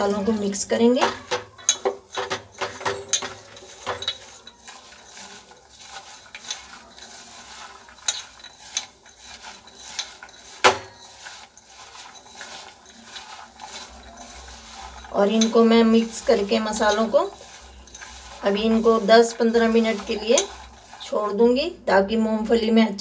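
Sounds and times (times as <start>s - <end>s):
peanuts rattling in steel pot: 0.0s - 23.0s.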